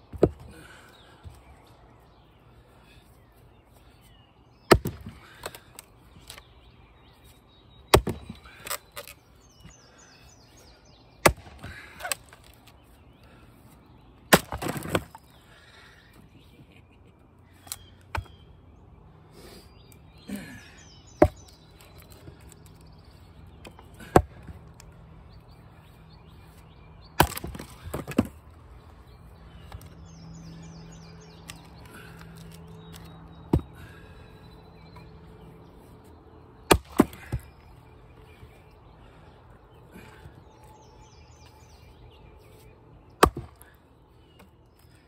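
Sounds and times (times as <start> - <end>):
birds chirping faintly: 0.0 - 45.0
axe chopping firewood: 0.1 - 0.7, 4.6 - 6.5, 7.9 - 9.2, 11.2 - 12.5, 14.3 - 15.2, 17.7 - 18.4, 21.1 - 22.8, 23.6 - 24.6, 27.2 - 28.4, 31.4 - 34.0, 36.6 - 37.6, 43.1 - 43.8.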